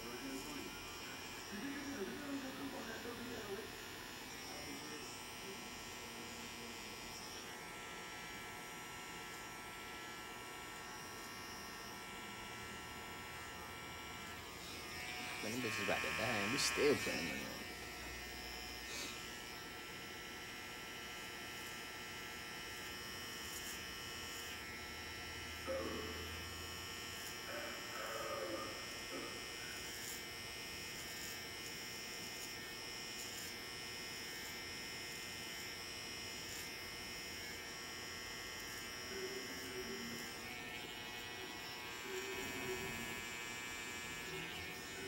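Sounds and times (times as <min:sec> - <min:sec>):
electric hair trimmer buzzing: 0:00.0 - 0:45.0.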